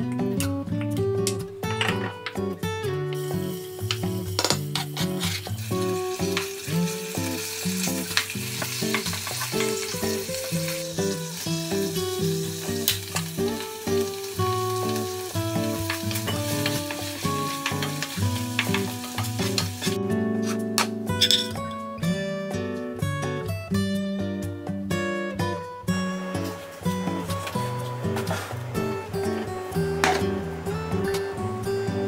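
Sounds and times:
music with plucked notes: 0:00.0 - 0:32.0
meat sizzling in a pan: 0:03.2 - 0:20.0, 0:26.2 - 0:32.0
spoon stirring in a pan: 0:03.9 - 0:11.4, 0:12.8 - 0:20.6, 0:26.4 - 0:31.4.

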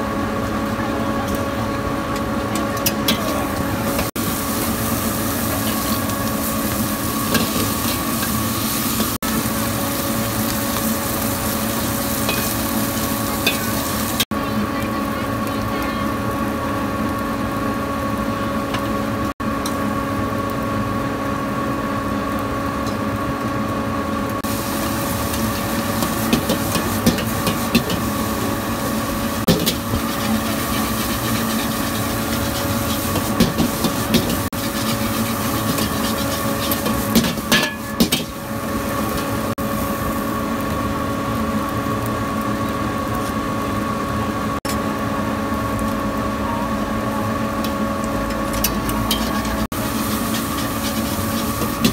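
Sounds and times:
steady mechanical hum: 0:00.0 - 0:51.9
metal spatula scraping a wok: 0:29.5 - 0:38.3, 0:48.5 - 0:51.9.

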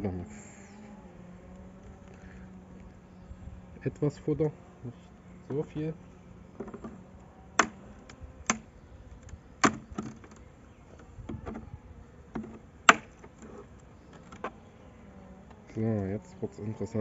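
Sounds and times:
hive tool knocking wooden frames: 0:03.8 - 0:17.0.

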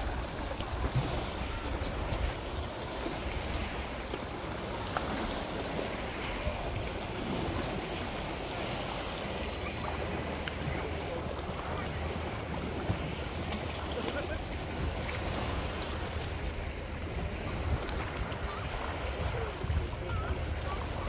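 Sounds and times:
wind noise on microphone: 0:14.7 - 0:21.0.

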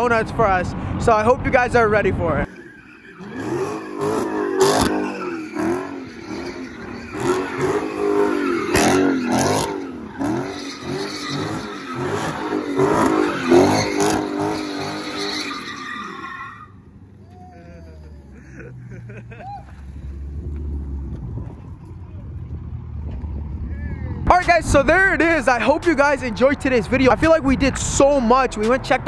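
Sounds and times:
exhaust cracks: 0:02.4 - 0:17.4, 0:18.0 - 0:29.0
tyres squealing on pavement: 0:02.4 - 0:18.6
car engine revving: 0:02.4 - 0:28.7.

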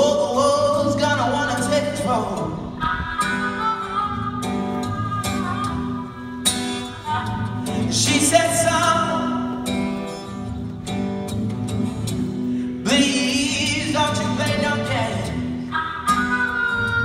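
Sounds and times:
man singing: 0:00.0 - 0:05.8, 0:07.0 - 0:09.8, 0:12.6 - 0:17.0
acoustic guitar chords: 0:00.0 - 0:17.0
harmonica: 0:02.8 - 0:08.1.

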